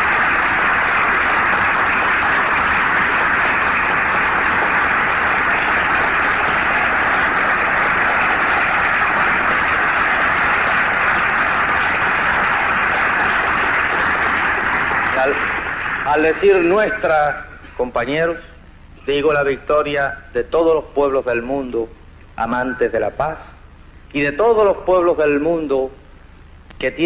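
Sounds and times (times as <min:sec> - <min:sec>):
large audience applauding: 0:00.0 - 0:18.0.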